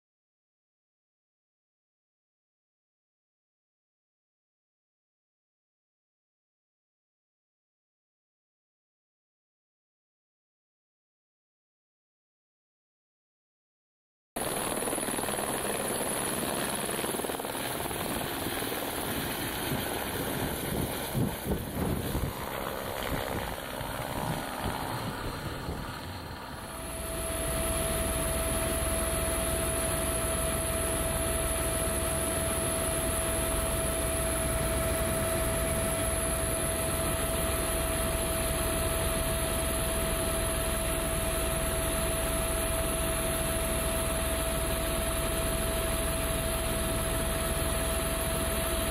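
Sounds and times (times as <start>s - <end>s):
helicopter rotor and engine: 14.4s - 48.9s
steady engine whine: 14.4s - 48.9s.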